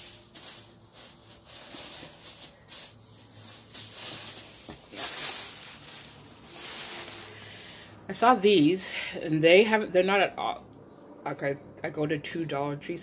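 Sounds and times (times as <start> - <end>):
rustling of items: 0.0 - 9.3.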